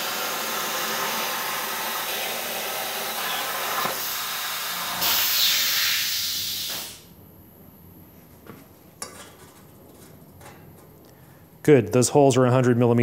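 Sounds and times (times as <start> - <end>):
plasma cutter hissing: 0.0 - 7.1.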